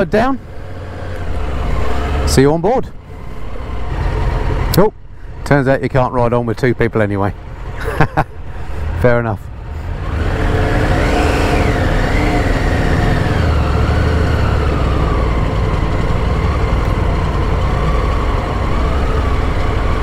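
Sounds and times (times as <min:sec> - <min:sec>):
motorcycle engine pulling away: 0:10.0 - 0:20.0.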